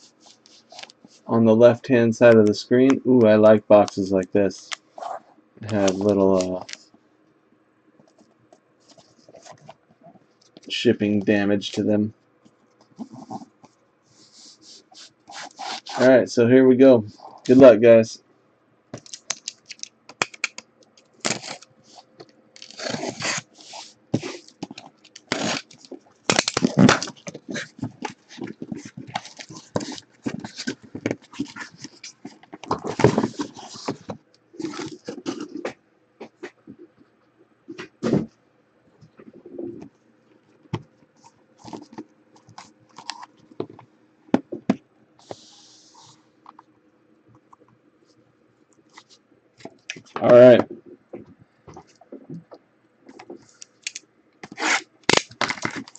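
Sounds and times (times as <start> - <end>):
packing tape tearing: 19.0 - 21.7, 22.6 - 33.9, 53.8 - 55.9
plastic wrap crinkling: 19.0 - 34.0, 53.8 - 55.9.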